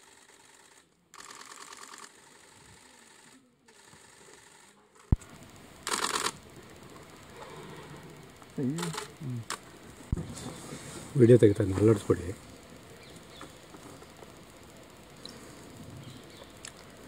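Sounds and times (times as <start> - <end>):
camera shutters firing in bursts: 0.0 - 6.4, 8.7 - 9.6.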